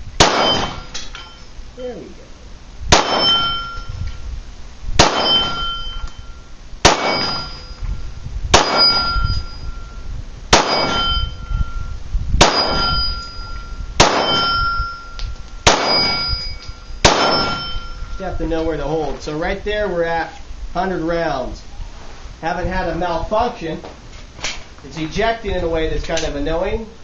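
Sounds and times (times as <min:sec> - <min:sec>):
pistol shots: 0:00.2 - 0:00.9, 0:02.9 - 0:03.7, 0:05.0 - 0:05.8, 0:06.8 - 0:07.6, 0:08.5 - 0:09.2, 0:10.5 - 0:11.2, 0:12.4 - 0:13.0, 0:14.0 - 0:14.6, 0:15.6 - 0:16.4, 0:17.0 - 0:17.7
steel gong target ringing: 0:03.0 - 0:04.0, 0:05.0 - 0:07.8, 0:08.6 - 0:10.0, 0:10.6 - 0:18.7.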